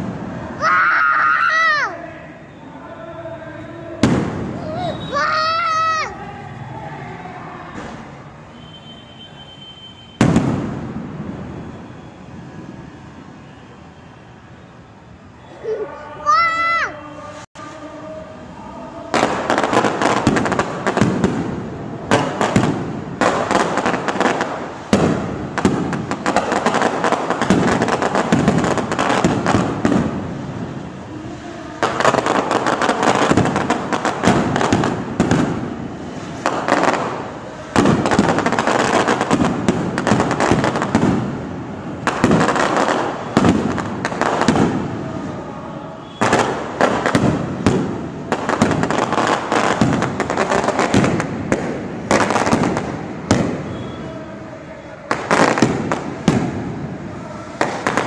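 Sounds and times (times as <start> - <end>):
fireworks bangs and crackles: 0.0 - 1.6, 3.4 - 13.6, 17.3 - 58.0.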